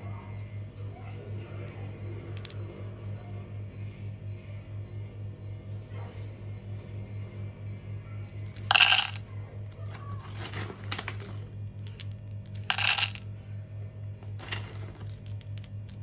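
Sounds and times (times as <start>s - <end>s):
coffee beans clattering into cup: 8.5s - 9.2s, 10.2s - 13.2s, 14.2s - 16.0s.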